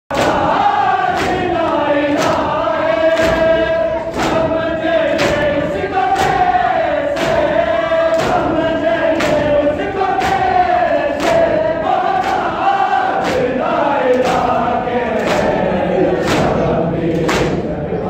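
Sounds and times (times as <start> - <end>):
men chanting: 0.1 - 18.0
hands slapping chests: 1.0 - 4.6, 5.2 - 6.5, 8.1 - 8.5, 9.2 - 9.6, 11.2 - 11.6, 12.2 - 15.6, 16.2 - 17.6.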